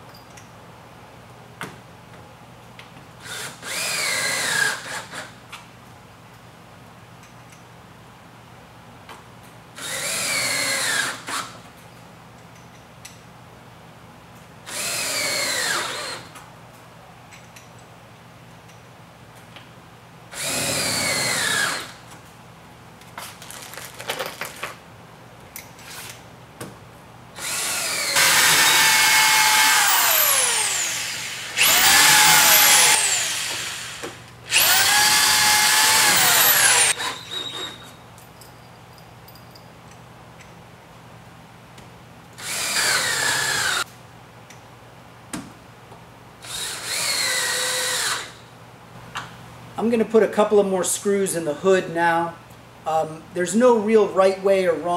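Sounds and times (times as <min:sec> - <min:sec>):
cordless drill driving screws: 0:03.2 - 0:05.3, 0:09.8 - 0:11.5, 0:14.7 - 0:16.3, 0:20.4 - 0:22.0, 0:27.4 - 0:37.9, 0:42.4 - 0:43.8, 0:46.4 - 0:48.4.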